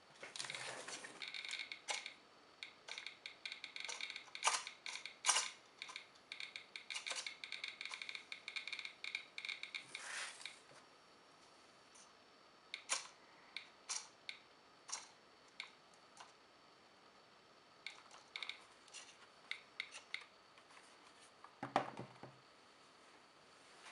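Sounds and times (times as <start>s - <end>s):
geiger counter clicking: 1.2s - 10.6s, 12.7s - 16.4s, 17.8s - 20.3s.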